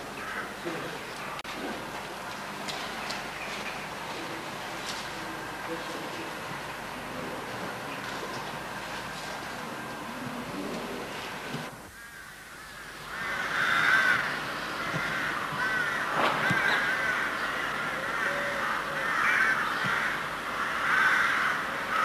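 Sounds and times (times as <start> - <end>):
crows cawing: 0.0 - 0.9, 11.9 - 22.0.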